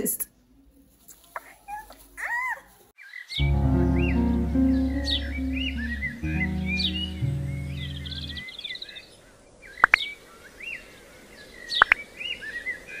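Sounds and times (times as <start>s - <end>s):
background music low notes: 3.4s - 8.4s
rising two-note whistle call: 3.4s - 8.4s
birds chirping: 3.4s - 8.5s.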